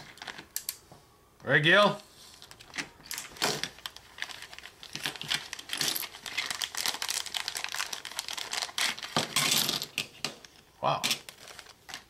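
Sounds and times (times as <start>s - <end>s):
plastic bag crinkling: 2.4s - 9.8s, 10.5s - 12.0s.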